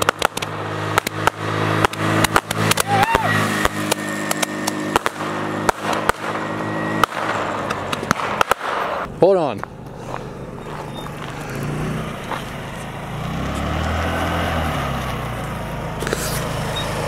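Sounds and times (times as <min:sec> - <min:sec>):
firework crackling pops: 0:00.0 - 0:09.1
car engine running: 0:00.0 - 0:17.0
firework whistle: 0:01.1 - 0:09.0.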